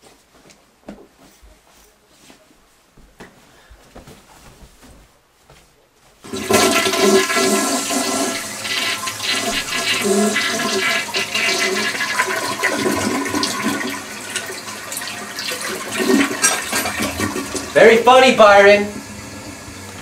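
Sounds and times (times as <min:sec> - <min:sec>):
shower water spraying: 0:06.3 - 0:20.0.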